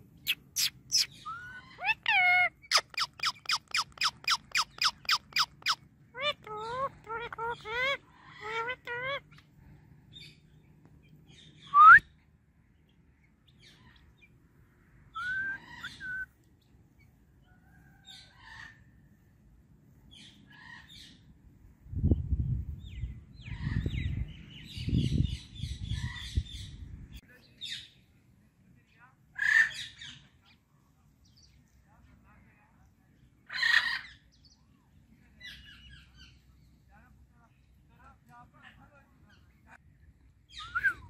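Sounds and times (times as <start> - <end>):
parrot chirping: 0.3 - 9.3
fast rhythmic chirping: 2.7 - 5.8.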